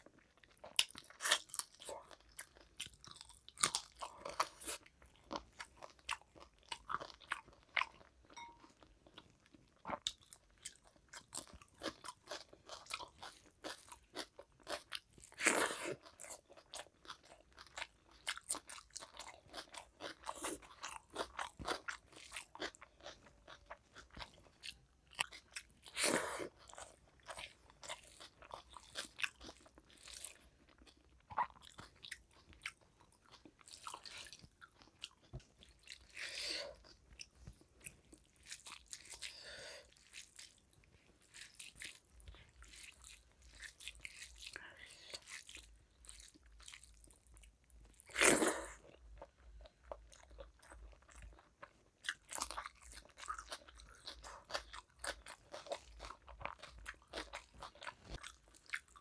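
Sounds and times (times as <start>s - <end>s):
chewing and crunching food: 0.0s - 59.0s.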